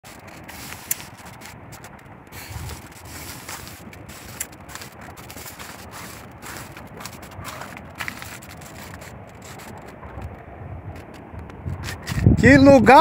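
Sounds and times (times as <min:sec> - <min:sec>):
steady rushing noise: 0:00.0 - 0:13.0
footsteps on dirt path: 0:00.1 - 0:12.2.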